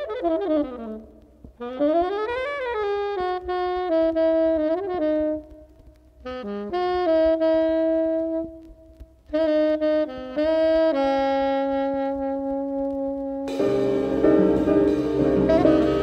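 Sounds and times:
saxophone playing slow phrases: 0:00.0 - 0:08.6, 0:09.3 - 0:16.0
jazz band playing: 0:11.8 - 0:16.0.

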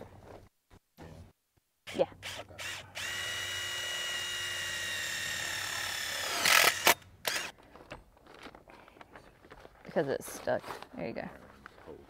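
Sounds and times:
cordless drill whine: 0:02.2 - 0:07.5.

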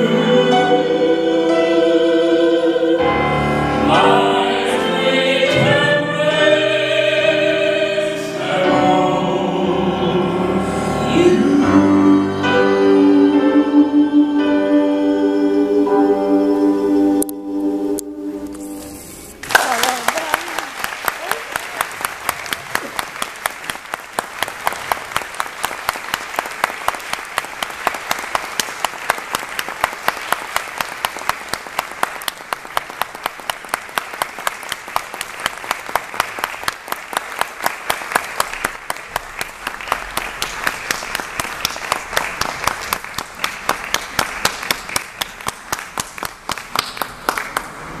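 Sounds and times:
audience applauding: 0:19.4 - 0:48.0
close hands clapping: 0:19.4 - 0:48.0.

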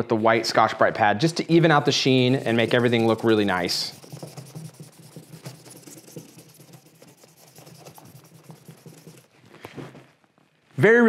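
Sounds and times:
scrubbing pad rubbing on wood: 0:02.0 - 0:09.3.

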